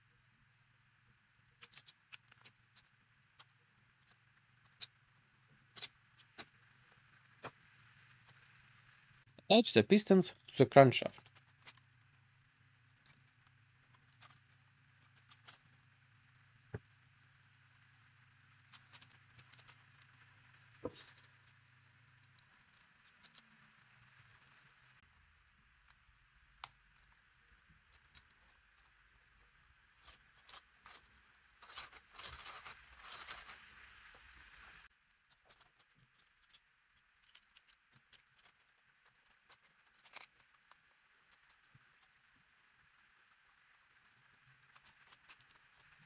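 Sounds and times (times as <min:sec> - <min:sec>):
plastic parts clicking and scraping: 0:01.5 - 0:07.6, 0:11.0 - 0:12.2, 0:12.9 - 0:15.8, 0:18.6 - 0:21.6, 0:29.8 - 0:46.0.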